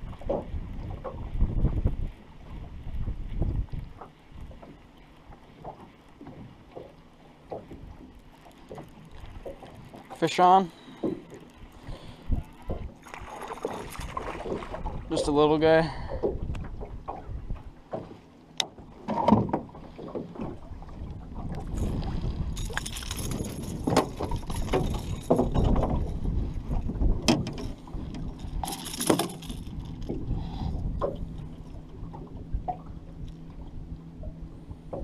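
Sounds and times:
knocks in aluminum boat: 26.8s - 28.3s.

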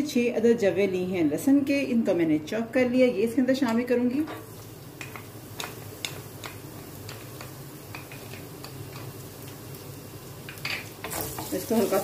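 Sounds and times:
garlic frying in oil: 4.0s - 12.0s.

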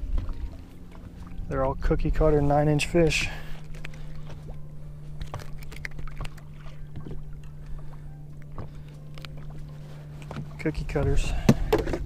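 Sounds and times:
low hum: 0.0s - 12.0s
hands handling a fish: 3.1s - 12.0s.

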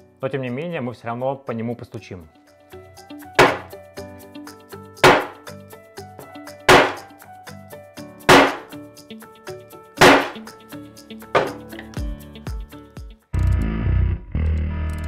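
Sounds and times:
hammer striking glass: 3.4s - 3.7s, 5.0s - 5.4s, 6.7s - 7.0s, 8.3s - 8.7s, 10.0s - 10.4s.

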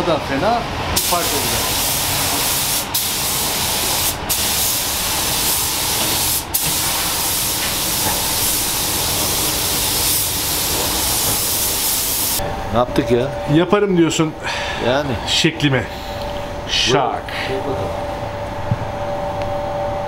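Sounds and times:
spray gun hissing: 1.0s - 12.4s.

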